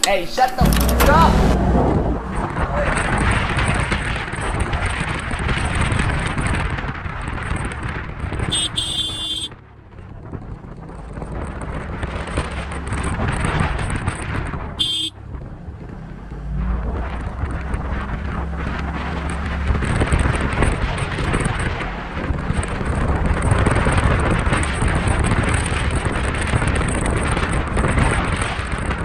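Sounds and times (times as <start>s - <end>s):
scooter engine running: 0.6s - 29.0s
wind on microphone: 0.6s - 29.0s
scooter horn beeps: 8.5s - 9.5s, 14.8s - 15.2s.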